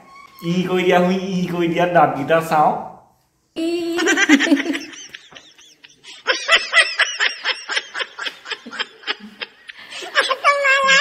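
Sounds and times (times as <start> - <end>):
elderly woman laughing: 4.0 - 11.0.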